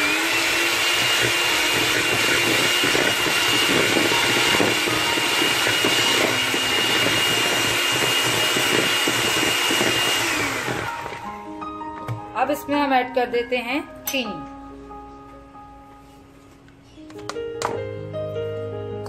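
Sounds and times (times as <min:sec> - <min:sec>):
beaters churning fat in bowl: 0:00.0 - 0:11.3
electric hand mixer whirring: 0:00.0 - 0:11.6.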